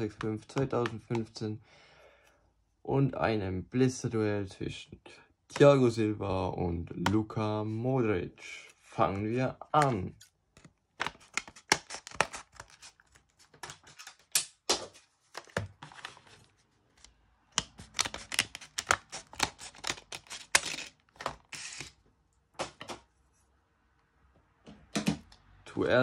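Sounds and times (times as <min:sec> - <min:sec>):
scissors snipping plastic: 0:17.5 - 0:21.9.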